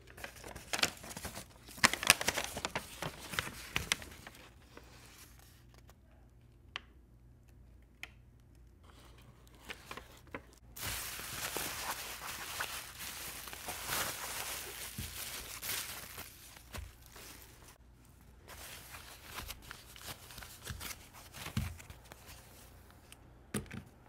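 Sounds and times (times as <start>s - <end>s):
bubble wrap crinkling: 0.0s - 5.8s, 9.7s - 22.6s
paper rustling and taps: 0.2s - 4.4s, 9.6s - 17.6s, 20.4s - 22.1s.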